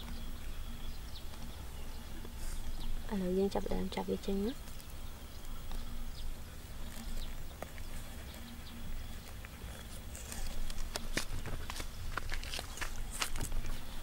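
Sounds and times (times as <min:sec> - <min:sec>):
fingers digging in dry soil: 0:04.4 - 0:14.0.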